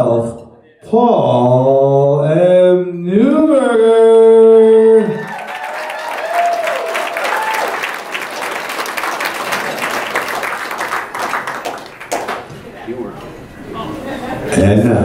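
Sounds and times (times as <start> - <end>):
audience applauding: 5.2 - 12.5.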